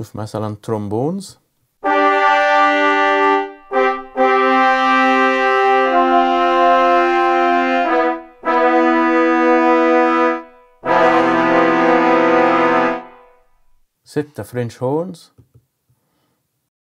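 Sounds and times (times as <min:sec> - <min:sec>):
trombones playing sustained notes: 0:01.8 - 0:13.8.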